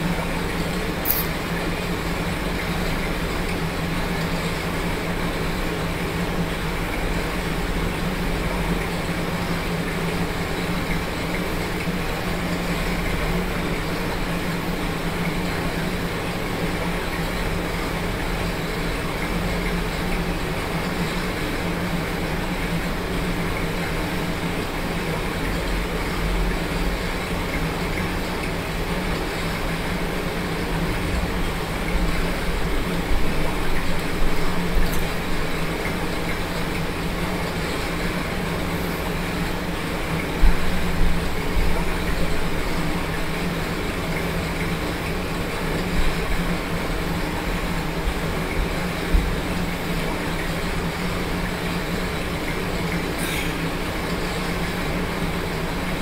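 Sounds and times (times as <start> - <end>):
electric fan whirring: 0.0 - 56.0
exercise bike pedalling: 0.0 - 56.0.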